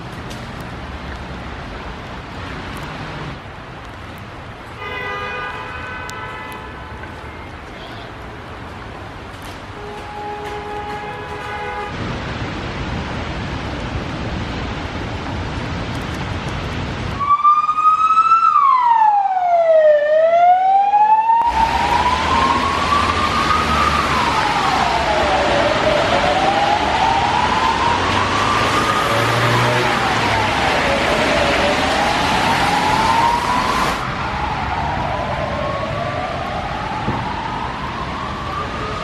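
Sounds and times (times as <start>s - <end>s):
street traffic noise: 0.0s - 39.0s
emergency siren wailing: 9.8s - 11.9s, 17.1s - 39.0s.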